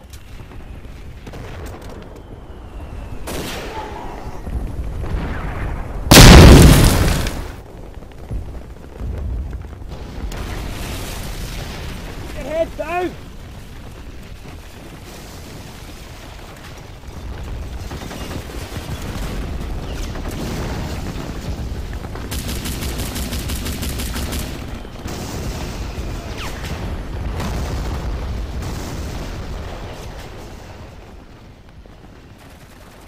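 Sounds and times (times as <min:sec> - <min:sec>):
booming explosions: 0:00.5 - 0:33.0
gunfire: 0:06.1 - 0:07.6
machine-gun burst: 0:22.3 - 0:25.8.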